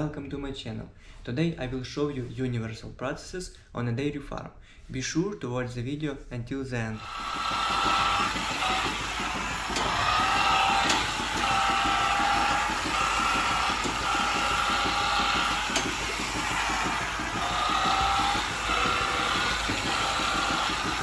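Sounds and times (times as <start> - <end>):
milking machinery hiss and rattle: 7.0 - 21.0
motorised brush whining: 7.0 - 21.0.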